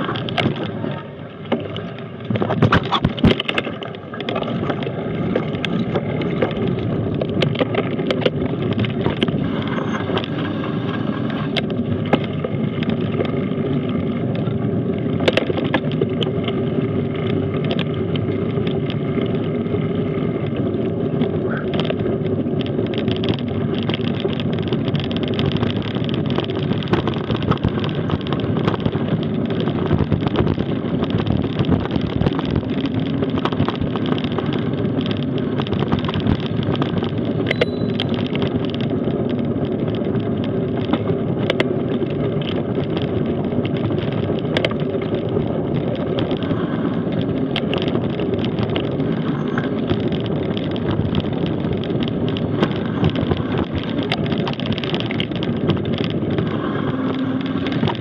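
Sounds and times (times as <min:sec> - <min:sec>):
bike rattling: 0:00.0 - 0:58.0
bike tyres rumbling on dirt: 0:00.0 - 0:58.0
sharp clicks and knocks: 0:00.0 - 0:58.0
wind buffeting microphone: 0:00.0 - 0:58.0.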